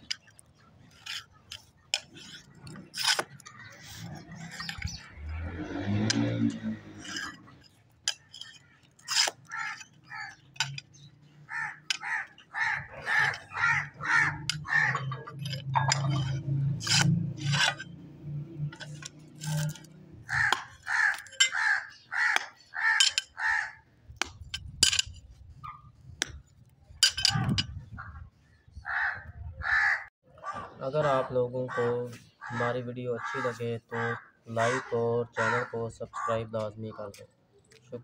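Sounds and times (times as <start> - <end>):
crows cawing: 9.1 - 10.4, 11.4 - 15.3, 20.2 - 23.8, 28.8 - 36.4.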